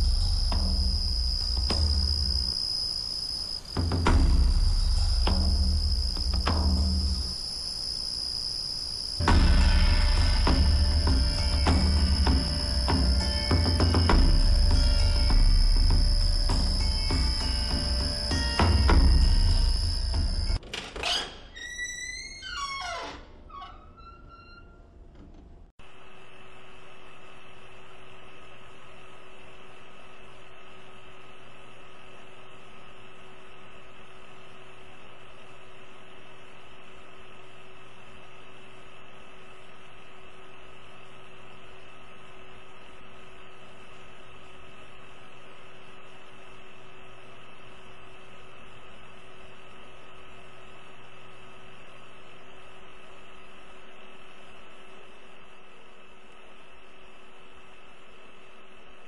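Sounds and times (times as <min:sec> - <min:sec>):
high whining tones: 0:00.0 - 0:20.6
electrical hum and hiss: 0:00.0 - 0:59.0.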